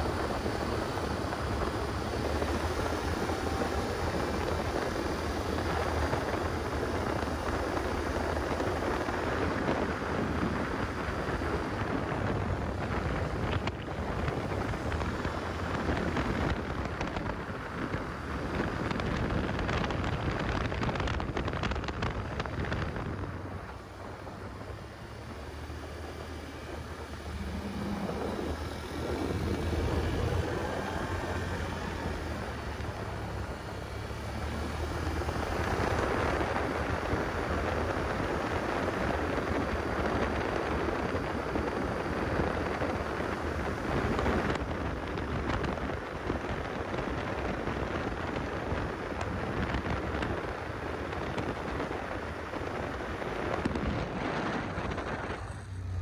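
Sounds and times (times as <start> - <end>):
quad engine running: 0.0 - 56.0
wind buffeting microphone: 0.0 - 56.0.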